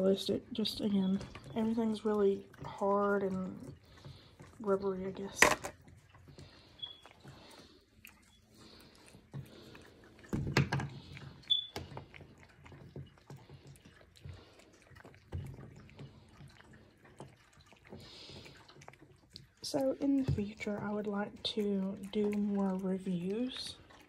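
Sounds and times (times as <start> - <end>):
dog chewing treats: 3.2 - 19.6.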